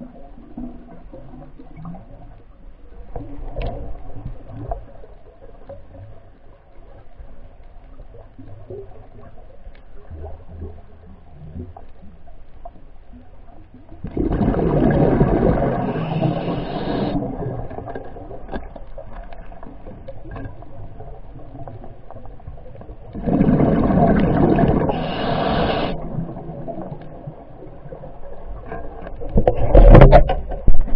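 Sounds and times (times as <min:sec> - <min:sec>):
underwater water noise: 0:00.0 - 0:30.9
exhaled breath bubbling underwater: 0:14.0 - 0:17.8, 0:23.2 - 0:27.4.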